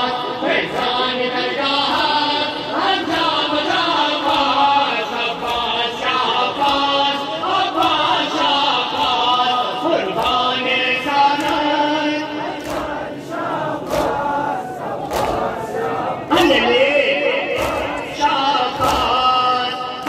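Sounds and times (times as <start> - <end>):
men chanting together: 0.0 - 20.0
chest-beating slaps: 10.2 - 11.8, 12.4 - 13.1, 13.8 - 15.6, 17.5 - 19.3.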